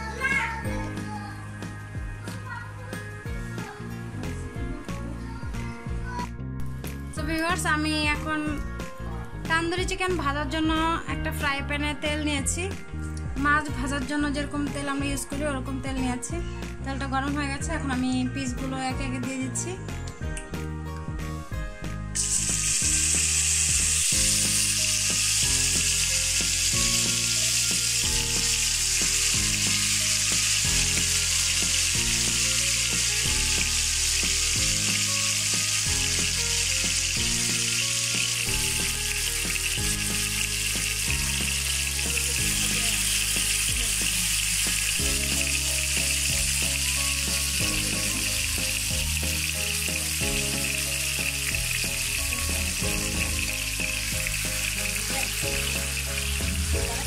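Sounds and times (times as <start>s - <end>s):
background music: 0.0s - 57.0s
hot oil sizzling in a frying pan: 22.2s - 57.0s.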